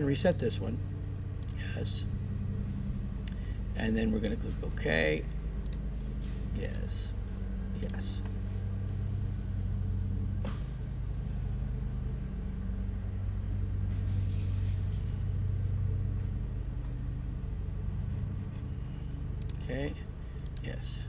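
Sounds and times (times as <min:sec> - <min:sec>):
steady low hum: 0:00.0 - 0:21.0
sharp click: 0:01.4 - 0:01.6, 0:19.4 - 0:19.6.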